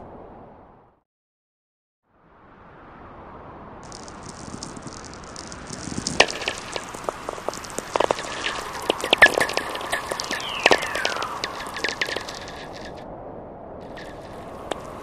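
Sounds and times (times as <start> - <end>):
hiss: 3.8 - 12.9
dense high crackle with snaps: 3.8 - 13.0, 13.8 - 15.0.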